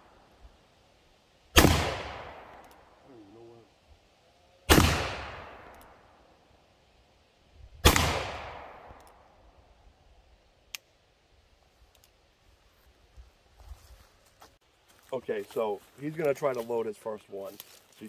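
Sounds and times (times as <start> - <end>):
faint click: 10.7 - 10.9, 11.8 - 12.2.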